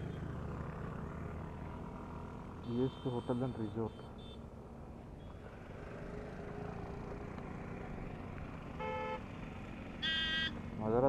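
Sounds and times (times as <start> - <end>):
road vehicles rumbling: 0.0 - 11.0
vehicle horn honk: 2.6 - 4.4, 8.8 - 9.2, 10.0 - 10.5.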